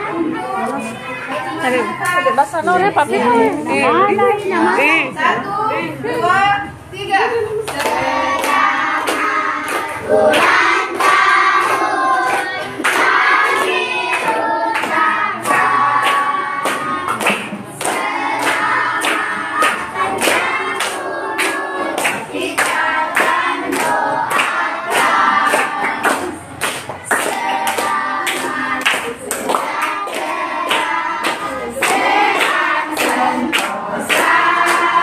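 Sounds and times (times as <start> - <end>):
group singing a birthday song: 0.0 - 35.0
hands clapping in rhythm: 7.7 - 35.0.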